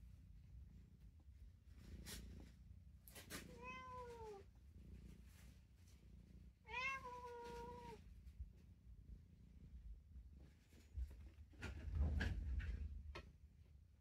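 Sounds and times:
cat meowing: 3.5 - 4.4, 6.7 - 8.0.

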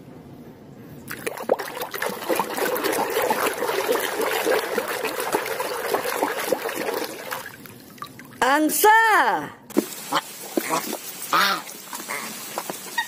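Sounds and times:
water splashing and sloshing: 1.1 - 8.5, 9.7 - 13.0.

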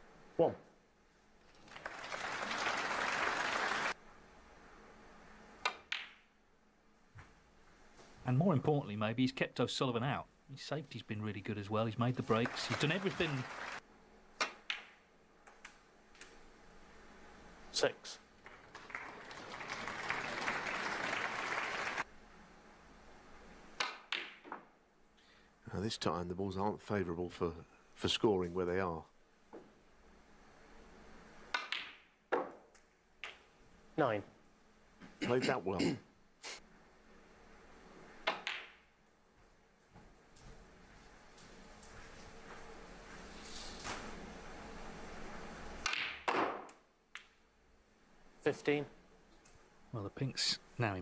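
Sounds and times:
audience applauding: 1.5 - 4.0, 12.1 - 13.8, 18.4 - 22.0
snooker balls clicking: 5.6 - 6.2, 14.4 - 15.7, 23.8 - 24.7, 31.5 - 33.5, 38.2 - 38.8, 45.8 - 47.4
cue tip striking ball: 38.2 - 38.8, 45.8 - 46.7.

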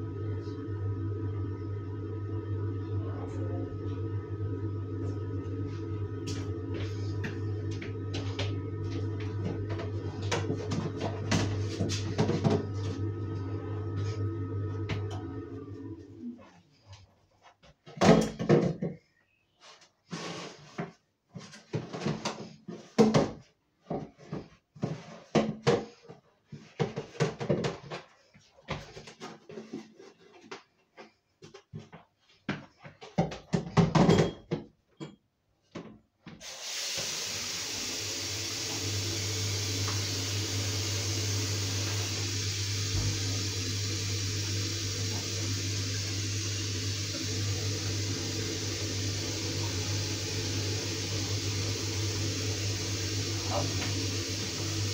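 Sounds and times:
low steady hum: 0.0 - 16.3
tap water running into sink: 3.8 - 15.9, 36.3 - 54.9
plastic bin knocking and clattering: 17.9 - 19.0.

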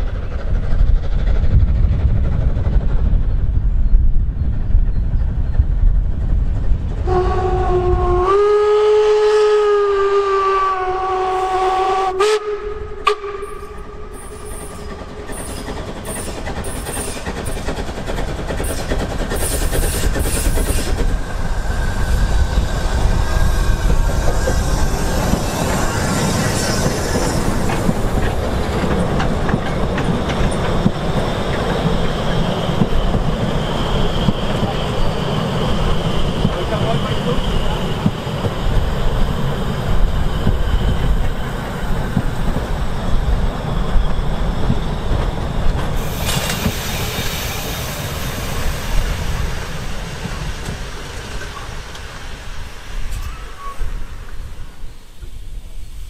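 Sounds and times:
steam train passing: 0.0 - 56.0
steam locomotive whistle: 7.0 - 15.6.

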